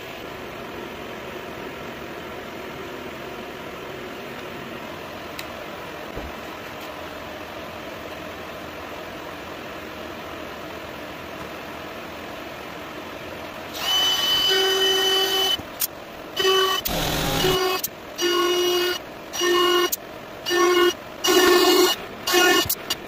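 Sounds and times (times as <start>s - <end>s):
router whining: 13.7s - 23.0s.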